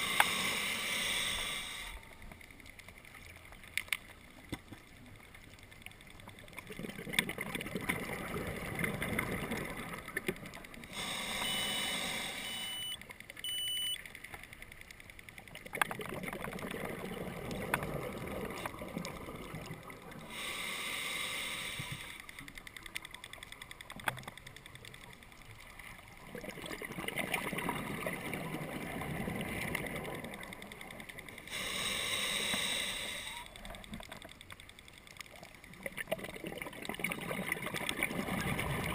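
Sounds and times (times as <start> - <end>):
hissing regulator inhalations: 0.0 - 2.0, 10.9 - 13.0, 20.2 - 22.4, 31.4 - 33.6.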